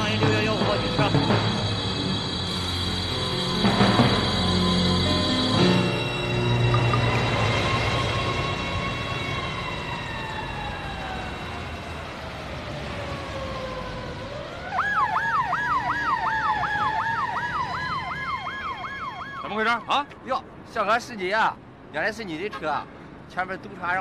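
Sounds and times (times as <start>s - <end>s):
police siren wailing and yelping: 6.7s - 19.8s.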